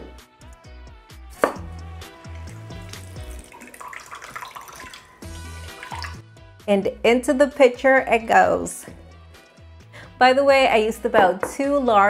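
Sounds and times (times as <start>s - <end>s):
background music: 0.0s - 12.0s
knife knocking on cutting board: 1.4s - 1.6s
juice trickling into a cup: 2.4s - 6.2s.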